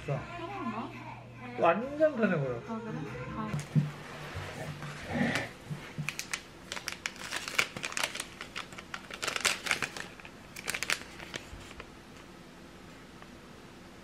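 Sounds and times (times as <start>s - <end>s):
paper sachet crinkling: 5.3s - 11.9s.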